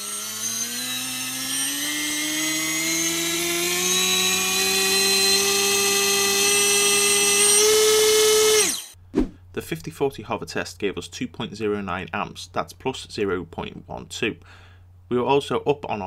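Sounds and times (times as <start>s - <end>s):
electric motor whine: 0.0s - 9.0s.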